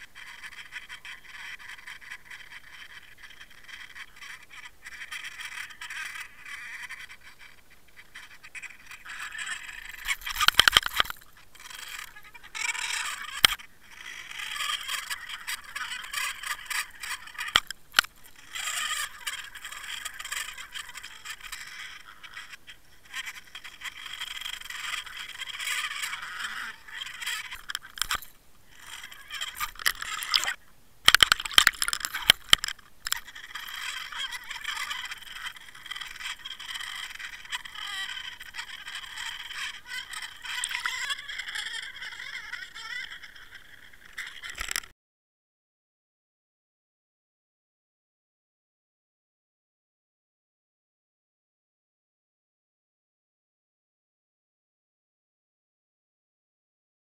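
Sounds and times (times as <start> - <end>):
water rushing against camera: 27.5 - 36.0.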